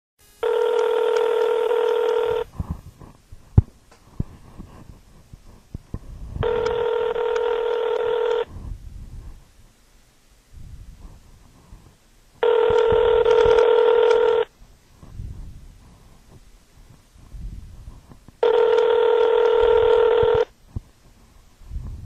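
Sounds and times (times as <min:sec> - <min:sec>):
telephone ringback tone: 0:00.4 - 0:02.5, 0:06.4 - 0:08.5, 0:12.4 - 0:14.5, 0:18.4 - 0:20.5.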